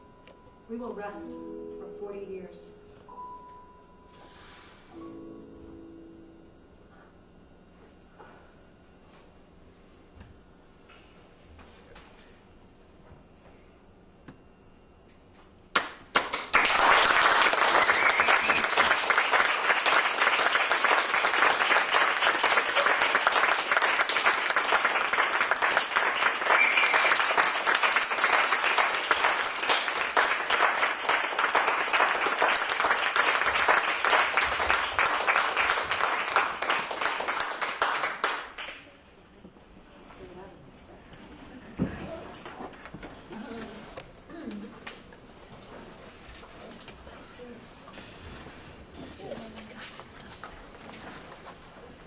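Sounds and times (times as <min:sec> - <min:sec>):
audience applauding: 0:15.8 - 0:38.9.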